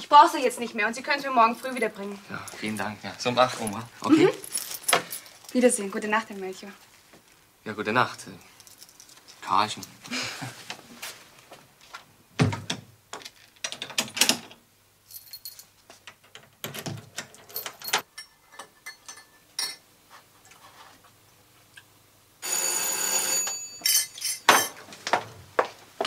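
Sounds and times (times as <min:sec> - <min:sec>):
electric doorbell ringing: 0:22.4 - 0:24.1.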